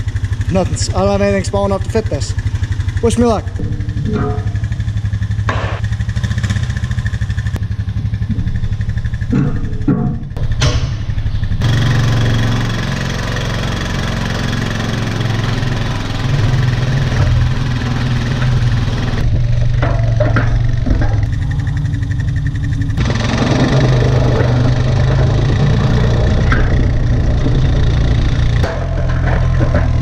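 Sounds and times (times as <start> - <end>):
atv engine running under load: 0.0 - 30.0
knocks: 3.4 - 5.8.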